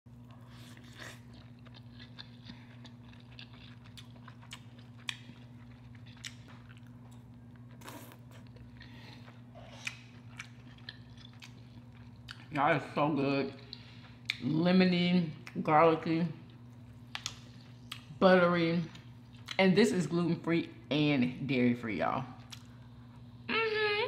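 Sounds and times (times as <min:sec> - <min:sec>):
steady low hum: 0:00.1 - 0:24.0
person biting and chewing: 0:00.3 - 0:08.7, 0:09.3 - 0:12.4.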